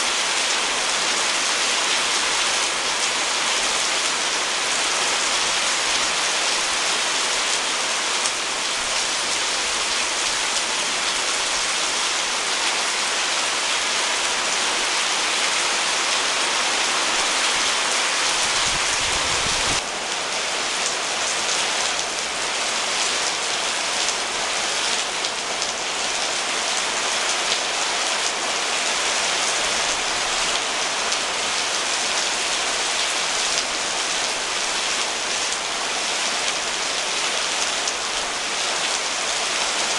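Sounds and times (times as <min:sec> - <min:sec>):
rain pattering on leaves: 0:00.0 - 0:39.9.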